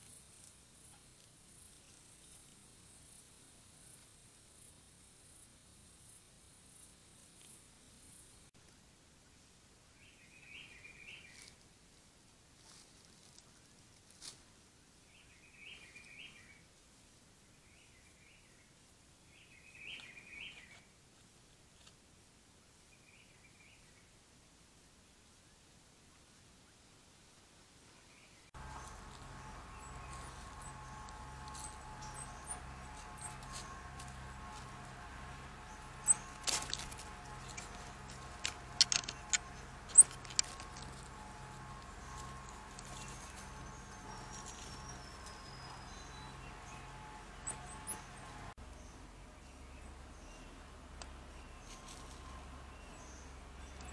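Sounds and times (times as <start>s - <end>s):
faint steady hiss: 0.0s - 47.4s
animal rustling through dry leaves: 12.5s - 14.5s, 28.6s - 48.5s, 51.4s - 53.9s.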